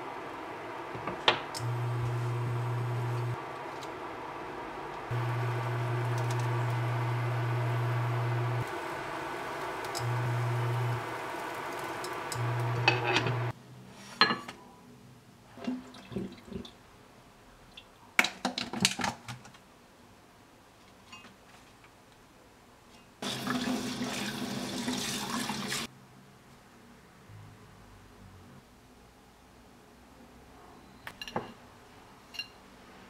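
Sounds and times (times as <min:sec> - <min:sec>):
electric cooktop humming: 0:00.9 - 0:03.4, 0:05.0 - 0:13.5.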